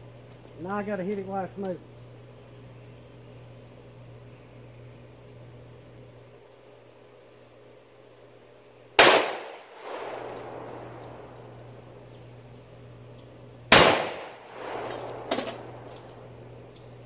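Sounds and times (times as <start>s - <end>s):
pistol shots with echo: 9.0s - 11.8s, 13.7s - 16.6s
metallic clang of steel target: 13.8s - 16.3s.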